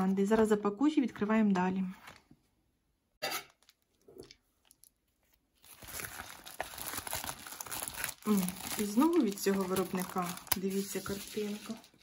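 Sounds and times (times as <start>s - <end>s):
packaging crinkling and rustling: 3.5s - 12.0s.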